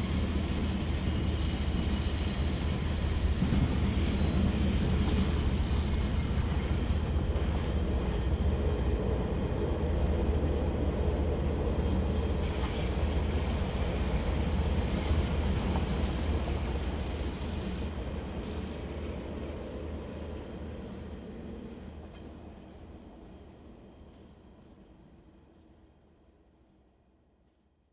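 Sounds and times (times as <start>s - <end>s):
wheel squeal: 0.0s - 7.8s, 10.0s - 19.4s
train wagons rumbling on track: 0.0s - 22.8s.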